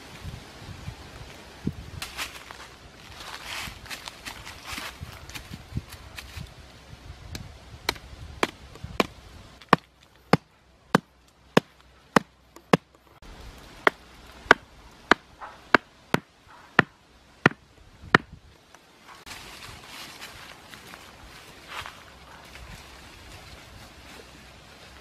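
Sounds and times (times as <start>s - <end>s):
stone knocking on bamboo stake: 13.8s - 18.3s.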